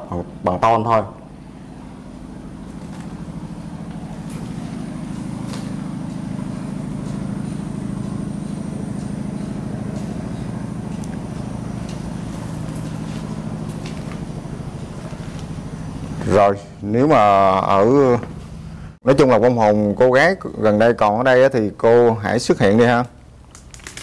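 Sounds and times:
engine humming: 0.0s - 19.0s.

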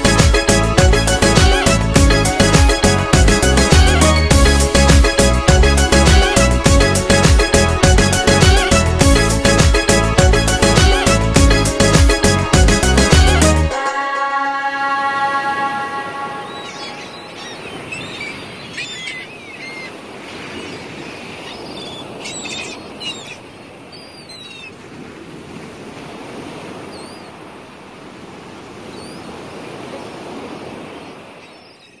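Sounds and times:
held music chord: 0.0s - 17.2s
gulls calling: 0.0s - 25.3s, 26.0s - 27.5s, 28.7s - 32.0s
surf washing onto beach: 14.8s - 31.6s.

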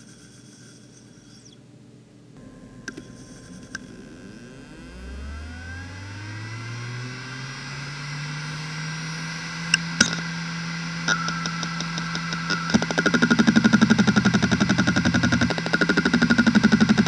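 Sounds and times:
hard drive motor whine: 2.4s - 17.0s
hard drive clicks: 11.1s - 17.0s.

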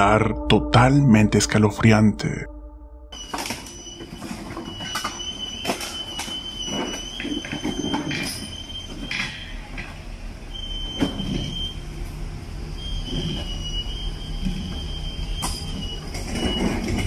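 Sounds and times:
low rumble: 0.0s - 3.9s.

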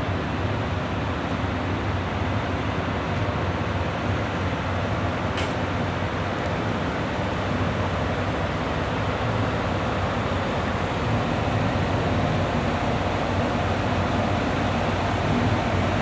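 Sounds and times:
train machinery hum: 0.0s - 16.0s.

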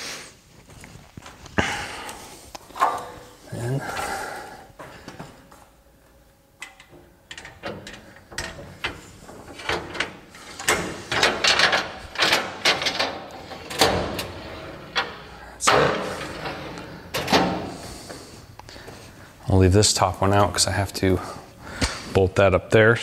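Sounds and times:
metal drawer sliding and rattling: 7.3s - 18.0s.

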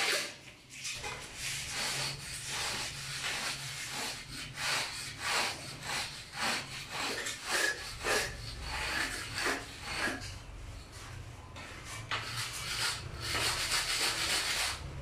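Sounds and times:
hand tool scraping cement: 0.0s - 10.4s.

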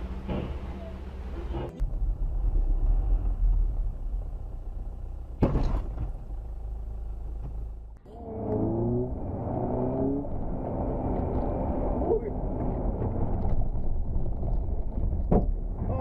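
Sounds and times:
car driving rumble: 0.0s - 16.0s
loud thump: 5.4s - 6.2s.

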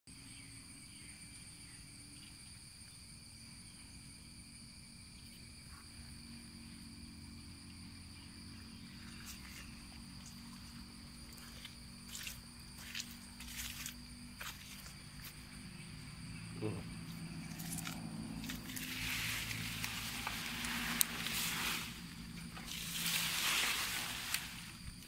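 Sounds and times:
insects chirping: 0.1s - 25.0s
footsteps on wet ground: 9.0s - 15.6s, 17.0s - 25.0s.

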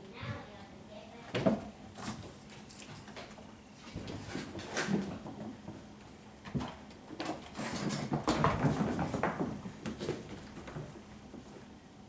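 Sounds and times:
light knocks and thumps: 3.9s - 11.5s.

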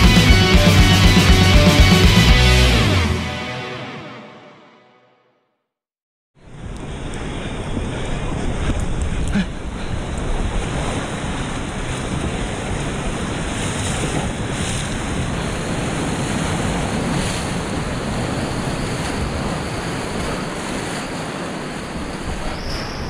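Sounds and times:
whitewater rushing and splashing: 7.8s - 23.0s.

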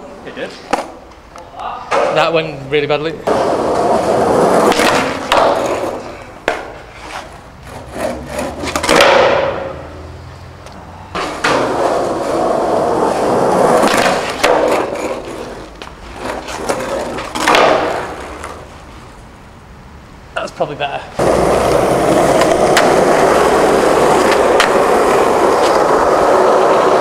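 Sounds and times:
skateboard wheels rolling: 3.2s - 19.6s, 21.1s - 27.0s
skateboard knocking on ground: 4.5s - 6.8s, 8.6s - 9.7s, 11.2s - 12.1s, 13.5s - 18.7s, 21.2s - 27.0s.

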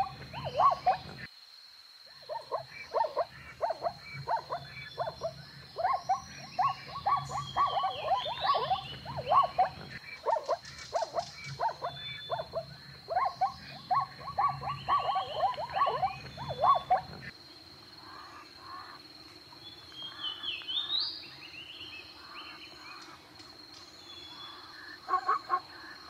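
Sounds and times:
zebras calling: 0.0s - 1.2s, 2.2s - 17.3s.

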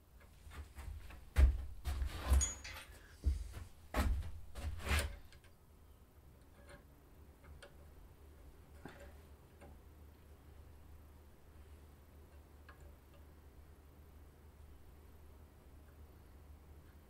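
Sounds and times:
faint light ticks: 12.3s - 13.3s.

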